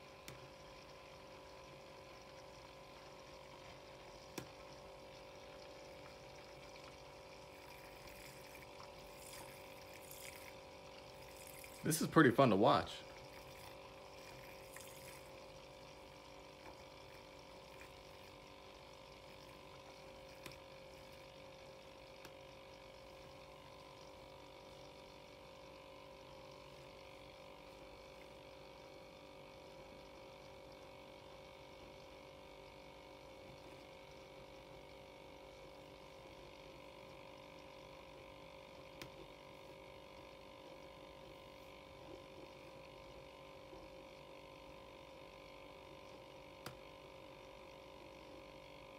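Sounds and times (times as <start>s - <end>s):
milk frother motor hum: 0.0s - 48.9s.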